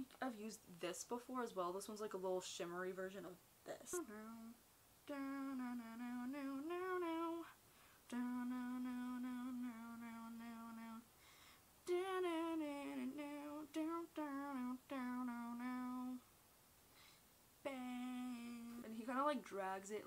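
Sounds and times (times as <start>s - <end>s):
woman humming: 3.7s - 4.5s, 8.1s - 11.0s, 17.7s - 18.9s.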